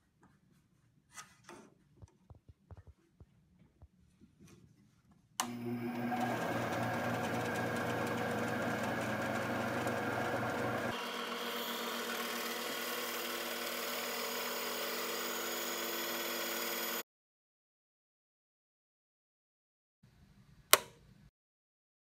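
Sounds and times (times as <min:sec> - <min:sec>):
band saw cutting plywood: 0:05.4 - 0:17.0.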